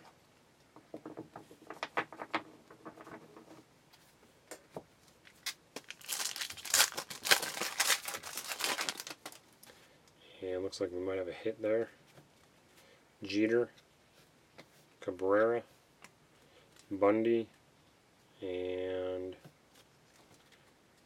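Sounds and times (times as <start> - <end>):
trading cards rustling: 5.3 - 9.7
foil wrapper crinkling and tearing: 5.4 - 9.6.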